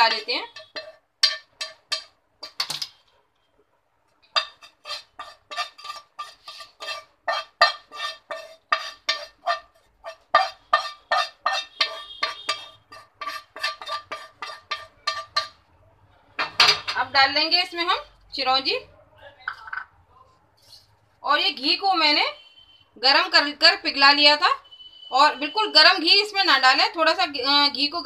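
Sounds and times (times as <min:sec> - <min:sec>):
spoon clinking in frying pan: 0:10.3 - 0:15.6.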